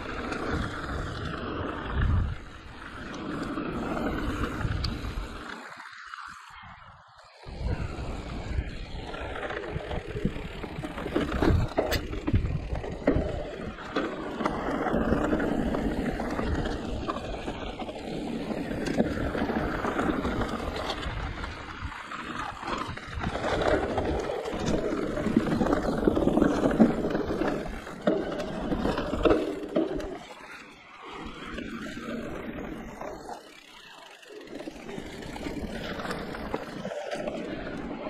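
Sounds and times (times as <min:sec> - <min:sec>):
low wind rumble: 0:00.0 - 0:05.6, 0:06.5 - 0:30.2
bike tyres rolling over dirt: 0:00.0 - 0:38.0.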